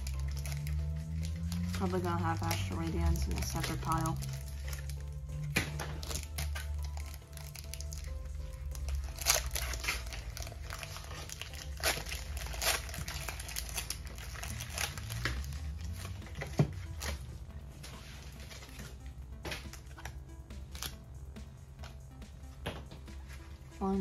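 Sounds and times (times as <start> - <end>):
foil wrapper crinkling and tearing: 0.0 - 17.2
background music: 0.0 - 24.0.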